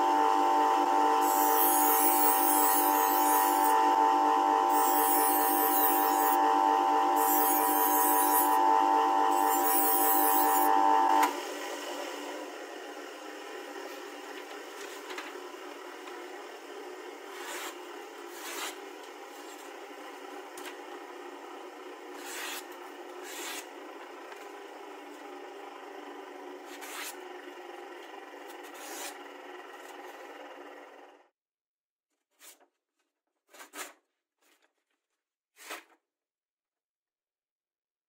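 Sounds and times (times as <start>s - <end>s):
knife slicing paper: 17.3s - 18.8s, 22.2s - 23.7s, 33.4s - 34.6s, 35.6s - 36.0s.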